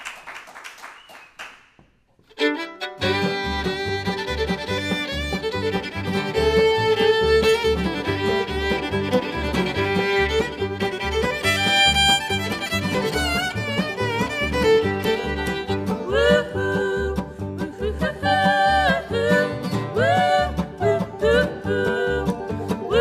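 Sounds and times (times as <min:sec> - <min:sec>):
applause: 0:00.0 - 0:01.8
fiddle playing a tune: 0:02.2 - 0:23.0
old-time string band: 0:02.3 - 0:23.0.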